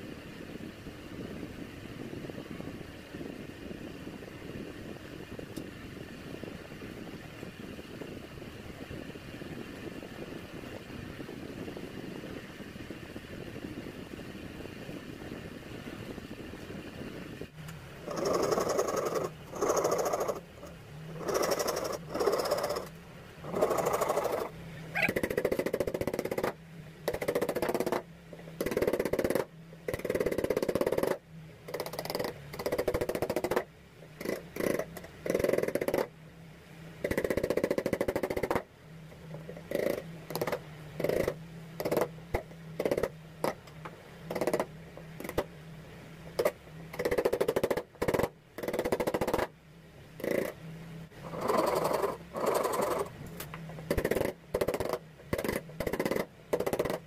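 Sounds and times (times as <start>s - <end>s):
faint low hum: 0.0s - 57.0s
wood chisel cutting wood: 21.2s - 28.0s, 39.7s - 42.1s.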